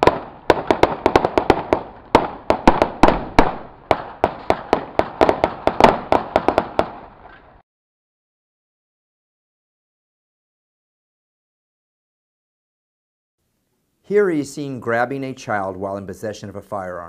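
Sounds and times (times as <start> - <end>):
gunshots with echo: 0.0 - 7.3.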